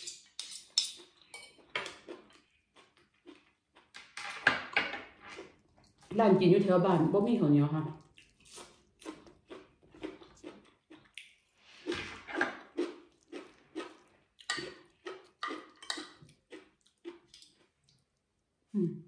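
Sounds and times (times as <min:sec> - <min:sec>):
spoon and fork scraping plate: 0:00.0 - 0:02.1, 0:15.4 - 0:16.2
chewing and lip-smacking: 0:00.9 - 0:04.2, 0:08.0 - 0:11.6, 0:12.2 - 0:18.3.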